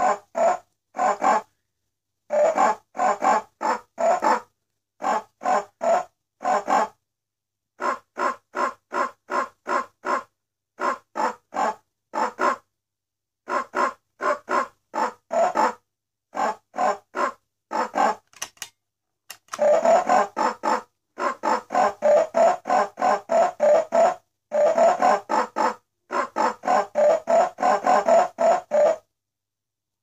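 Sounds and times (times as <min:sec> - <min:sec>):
clicks: 0:18.3 - 0:19.7
toy alarm clock singing notes: 0:19.5 - 0:20.6, 0:21.8 - 0:25.3.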